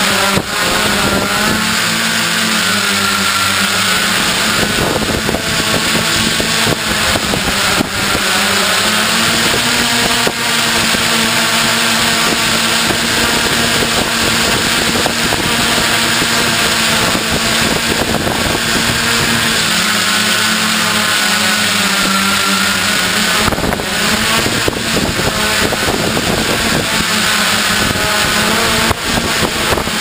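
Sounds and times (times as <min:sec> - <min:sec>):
drone motors humming: 0:00.0 - 0:30.0
wind buffeting microphone: 0:00.0 - 0:30.0.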